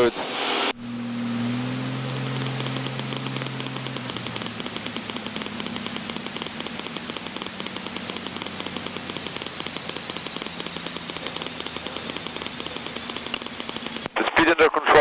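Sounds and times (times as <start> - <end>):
plane piston engine idling: 0.7 - 14.2.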